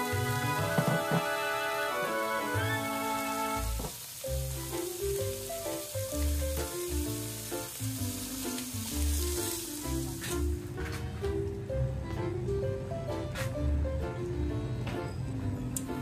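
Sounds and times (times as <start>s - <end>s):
bacon sizzling in a pan: 0.0s - 10.5s
background music: 0.0s - 16.0s.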